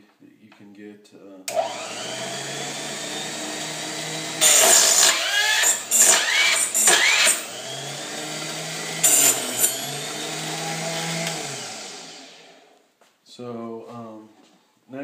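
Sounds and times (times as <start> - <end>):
electric chop saw running: 1.5 - 12.8
saw blade screeching through brass: 4.4 - 7.5, 9.0 - 9.9.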